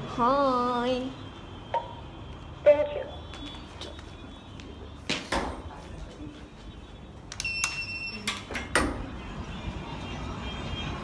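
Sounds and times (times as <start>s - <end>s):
short electronic beep: 7.4s - 8.3s.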